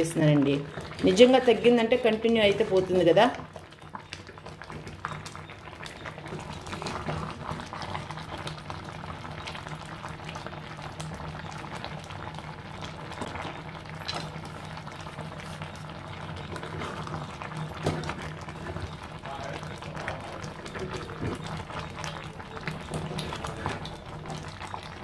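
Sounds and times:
jam boiling with bubbles popping: 0.0 - 25.0
wooden spatula scraping pot: 16.4 - 19.1.

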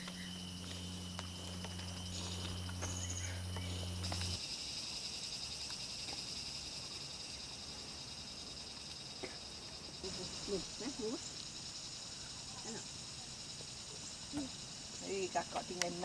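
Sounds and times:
low steady hum: 0.0 - 4.4
insects droning: 0.0 - 16.0.

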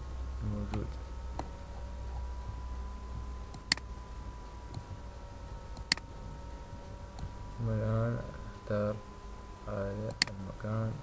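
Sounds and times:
low hum: 0.0 - 11.0
computer mouse clicking: 3.5 - 3.9, 5.7 - 6.1.

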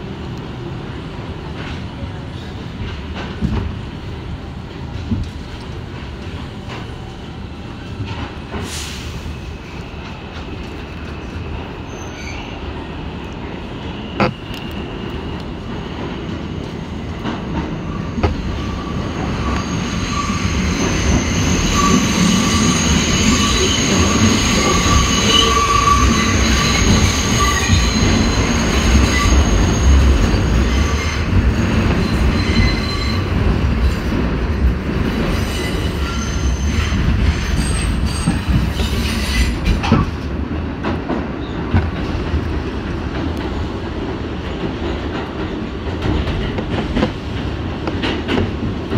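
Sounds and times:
train wheels rumbling on rails: 0.0 - 48.9
high wheel squeal: 18.0 - 33.3.

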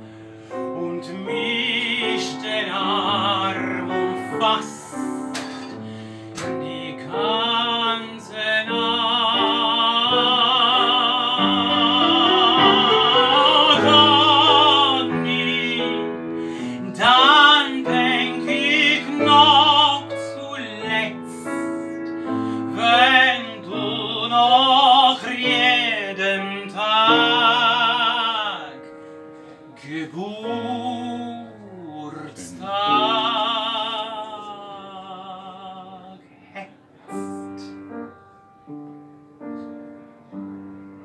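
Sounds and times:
piano accompaniment: 0.0 - 41.0
person singing operatically: 0.7 - 5.4, 6.4 - 22.0, 22.7 - 28.8, 29.8 - 37.7.

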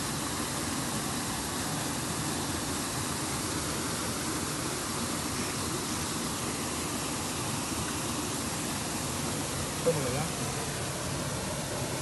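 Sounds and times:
river water flowing: 0.0 - 12.0.

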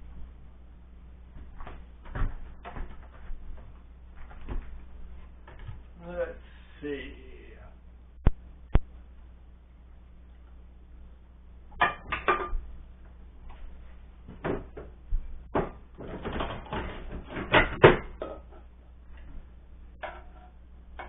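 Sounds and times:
dishes knocking and clattering: 11.8 - 12.7, 14.3 - 14.9, 15.5 - 18.7, 20.0 - 21.0.

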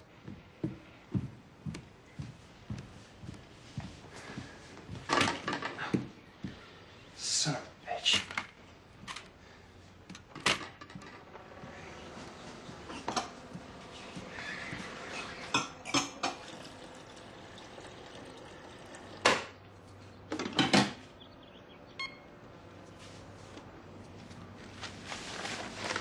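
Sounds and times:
dishes and cups clinking: 15.5 - 18.5.

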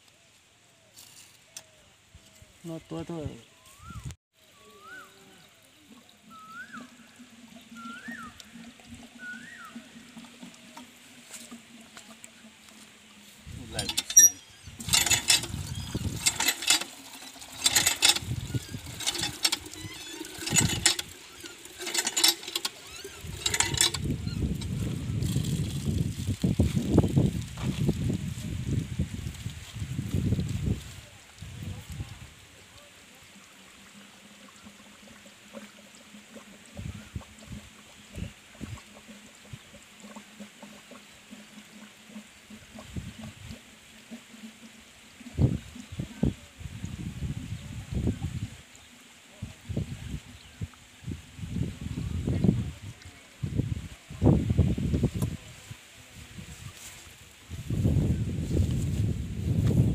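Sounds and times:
water gushing into a plastic jug: 5.4 - 59.9
hand pump metal creaking: 10.1 - 26.4.

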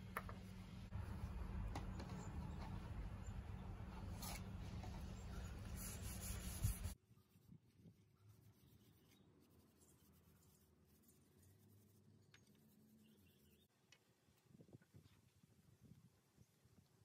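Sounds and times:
steady low rumble: 0.0 - 5.7.

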